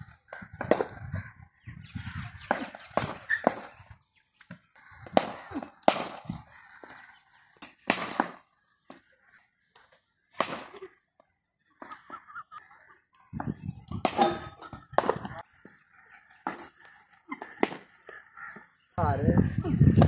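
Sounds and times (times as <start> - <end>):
bat striking cricket ball: 5.0 - 6.3, 7.6 - 8.4, 10.4 - 10.8, 14.0 - 15.4, 17.5 - 17.9.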